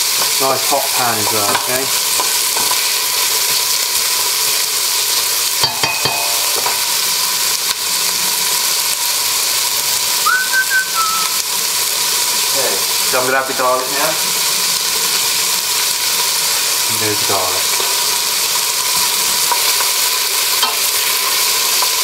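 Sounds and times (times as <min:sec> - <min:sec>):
vegetables sizzling in a pot: 0:00.0 - 0:22.0
spatula knocking on a pot: 0:05.6 - 0:06.5
short whistled note: 0:10.2 - 0:11.4.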